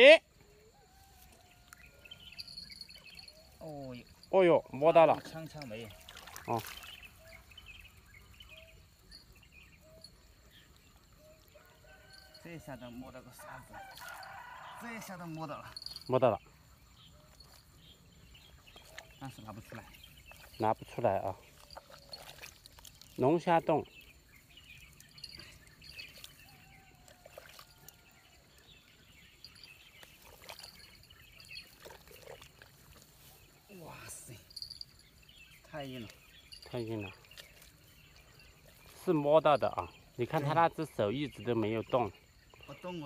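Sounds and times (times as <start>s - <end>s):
birds chirping: 0.0s - 43.0s
insects chirping: 0.0s - 43.0s
quiet rural ambience: 0.0s - 43.0s
small splashes: 5.1s - 7.5s, 13.7s - 14.5s, 18.6s - 24.1s, 24.8s - 28.1s, 29.5s - 33.8s
wet squelching in mud: 5.2s - 8.0s, 13.4s - 14.8s, 18.4s - 28.7s, 29.6s - 33.8s, 35.7s - 40.6s.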